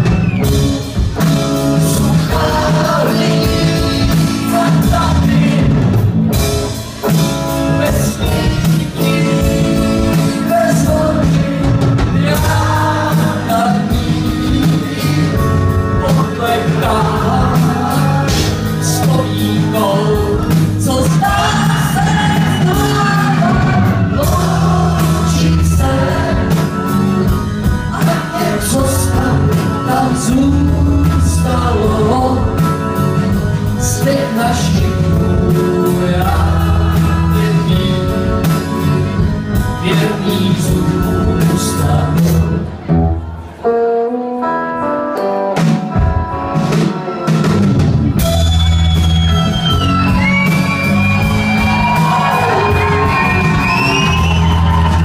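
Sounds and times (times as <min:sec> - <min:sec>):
pulsing bass line: 0:00.0 - 0:42.5, 0:47.4 - 0:55.0
drum kit: 0:00.0 - 0:43.1, 0:45.1 - 0:55.0
guitars: 0:00.0 - 0:55.0
person singing: 0:01.1 - 0:06.0, 0:07.1 - 0:39.0, 0:39.6 - 0:42.9.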